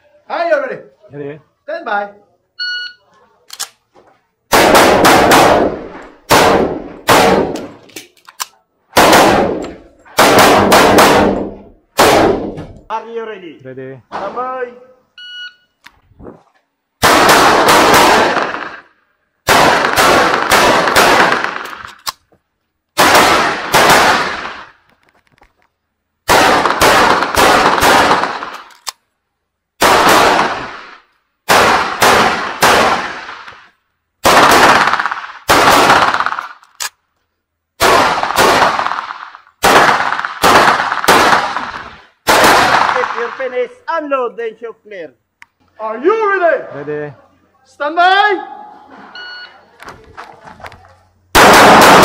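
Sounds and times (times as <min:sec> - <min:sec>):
pistol gunshots echoing: 0:04.5 - 0:07.8, 0:08.9 - 0:12.7, 0:17.0 - 0:21.9, 0:23.0 - 0:24.8, 0:26.2 - 0:28.7, 0:29.8 - 0:36.6, 0:37.8 - 0:43.6, 0:51.3 - 0:52.0.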